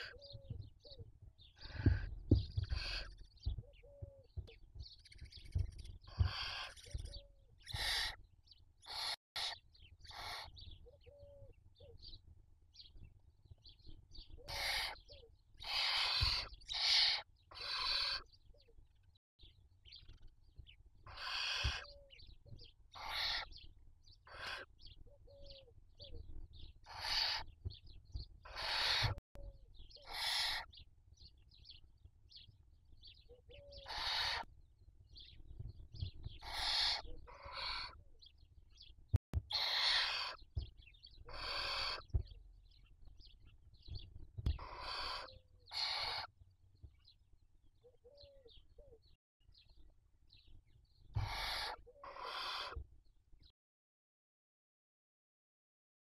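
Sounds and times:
owls hissing: 6.1s - 7.0s, 7.7s - 8.2s, 8.8s - 10.5s, 14.5s - 18.2s, 21.1s - 21.9s, 23.0s - 23.5s, 24.3s - 24.7s, 26.9s - 27.5s, 28.5s - 29.2s, 30.0s - 30.7s, 33.8s - 34.5s, 36.4s - 38.0s, 39.5s - 40.4s, 41.3s - 42.1s, 44.6s - 46.3s, 51.2s - 52.8s.

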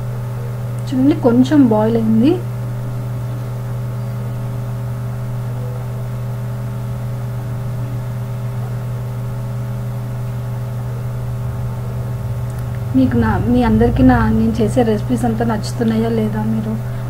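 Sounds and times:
low motor hum: 8.9s - 17.0s.

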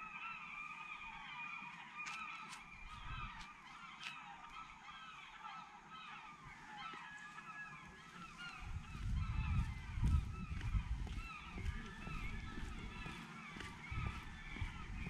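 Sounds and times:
gulls calling: 0.0s - 15.0s.

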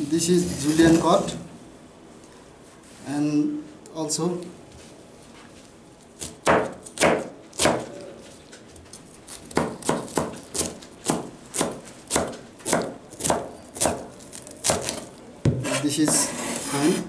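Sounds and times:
knife chopping cabbage: 6.2s - 8.1s, 8.8s - 17.0s.

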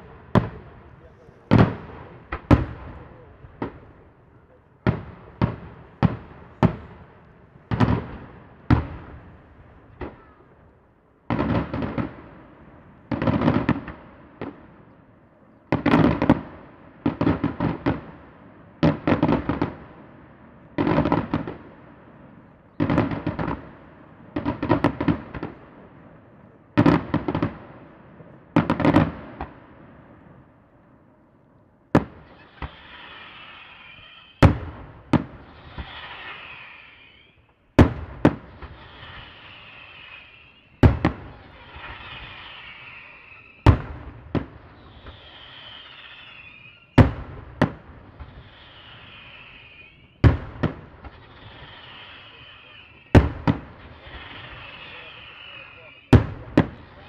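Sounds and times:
crackling firework bangs: 0.0s - 10.6s, 11.2s - 14.9s, 15.7s - 30.5s, 32.0s - 57.0s
sharp firework explosions: 0.0s - 10.6s, 11.3s - 14.8s, 32.0s - 57.0s
high wavering whistle: 48.6s - 50.2s.

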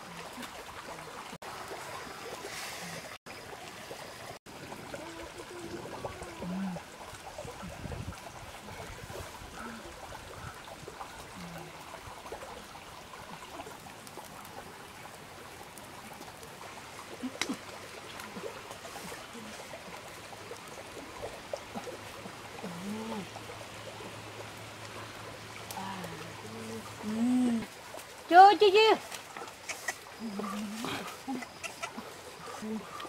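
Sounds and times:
water trickling: 0.0s - 33.0s
person humming: 25.8s - 27.7s.

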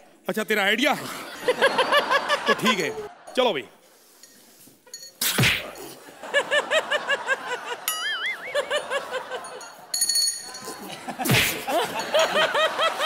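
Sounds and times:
wavering whistle-like tone: 7.9s - 8.8s.

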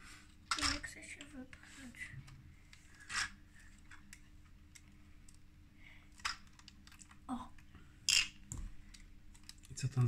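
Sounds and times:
plastic bricks clicking: 6.1s - 9.8s.

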